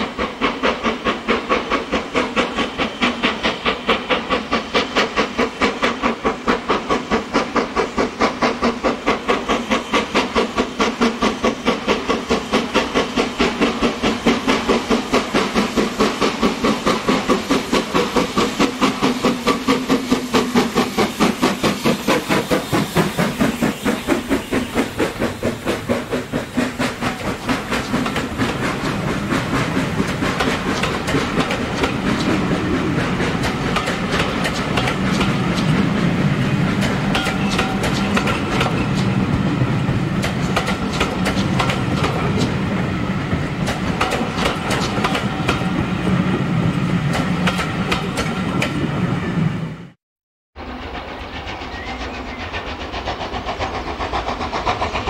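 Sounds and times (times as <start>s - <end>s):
coach wheels clickety-clack: 0.0s - 49.2s, 50.8s - 55.0s
steam locomotive exhaust chuffs: 0.0s - 49.5s, 50.6s - 55.0s.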